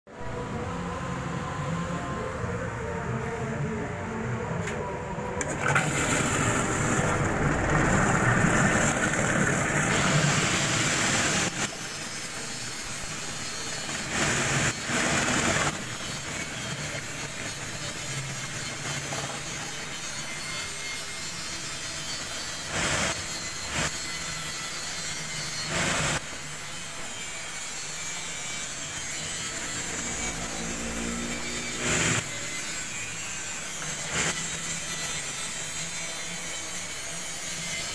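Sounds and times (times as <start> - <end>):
mixer motor running: 5.4 - 11.9, 13.6 - 16.8
metal grinding: 5.4 - 37.9.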